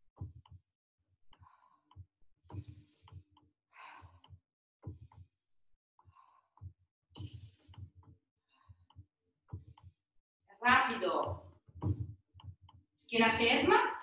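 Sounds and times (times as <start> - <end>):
woman's forceful breaths: 3.7 - 4.4.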